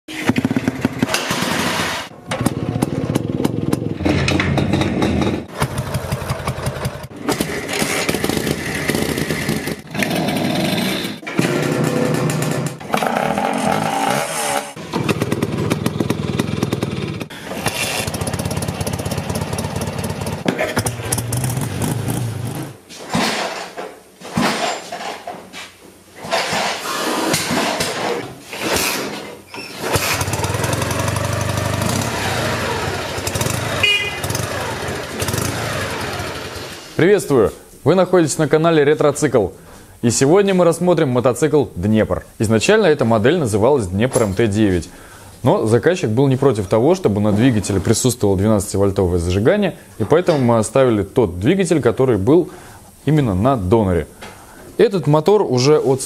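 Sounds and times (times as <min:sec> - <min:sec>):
motorcycle engines starting and running: 0:00.1 - 0:22.9, 0:29.6 - 0:37.0.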